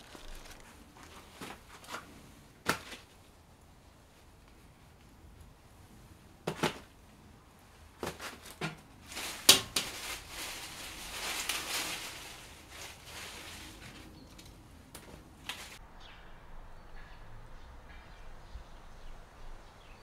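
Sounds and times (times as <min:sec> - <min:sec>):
leaf and wicker rustling: 0:00.0 - 0:03.4, 0:07.8 - 0:15.8
vegetables knocking in basket: 0:08.0 - 0:10.2.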